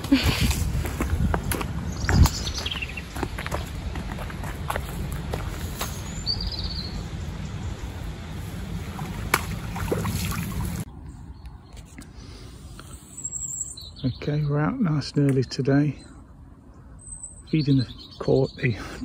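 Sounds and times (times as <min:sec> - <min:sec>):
wind rumble on microphone: 0:00.0 - 0:10.9
bird chirp: 0:01.8 - 0:03.7, 0:05.7 - 0:08.1, 0:09.9 - 0:19.0
net splashing in water: 0:09.0 - 0:10.8.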